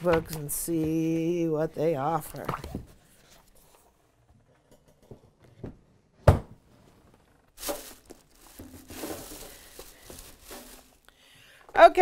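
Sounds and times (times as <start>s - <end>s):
plastic bag crinkling: 7.5s - 11.3s.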